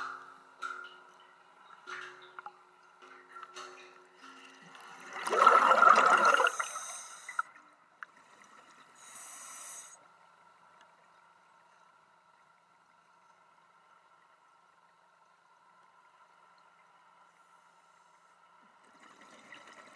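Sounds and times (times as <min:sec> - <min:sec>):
faint steady whine: 0:00.0 - 0:19.4
exhaled bubbles underwater: 0:05.0 - 0:06.7
regulator inhale hiss: 0:06.5 - 0:07.5, 0:09.0 - 0:10.0.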